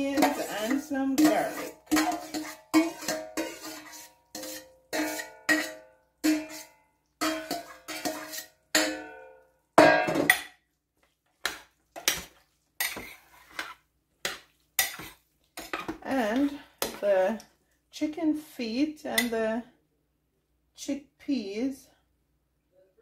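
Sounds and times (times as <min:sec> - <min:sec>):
metal spoon scraping in crock: 0:00.0 - 0:08.9.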